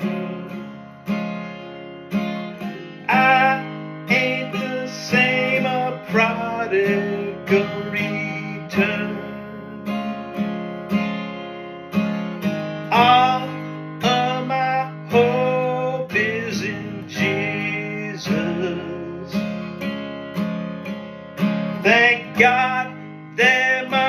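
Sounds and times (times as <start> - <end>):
acoustic guitar strumming: 0.0 - 24.0.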